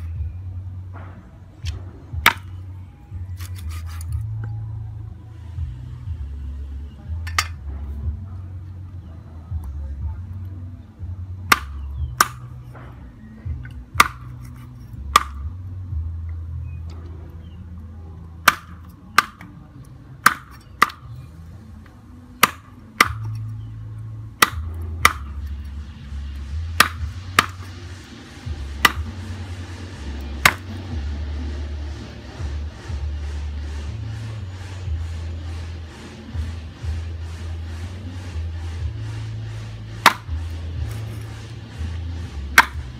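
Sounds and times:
cleaver chopping on wooden board: 0:01.6 - 0:02.5, 0:11.5 - 0:12.8, 0:14.0 - 0:15.4, 0:18.4 - 0:19.5, 0:20.2 - 0:21.1, 0:22.4 - 0:23.5, 0:24.4 - 0:25.5, 0:26.8 - 0:27.8, 0:28.8 - 0:29.2, 0:30.4 - 0:30.8, 0:40.0 - 0:41.0, 0:42.5 - 0:42.9.

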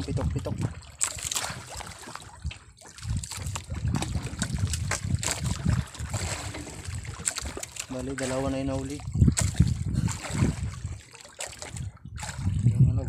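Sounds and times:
water splashing and trickling: 0:00.0 - 0:13.0.

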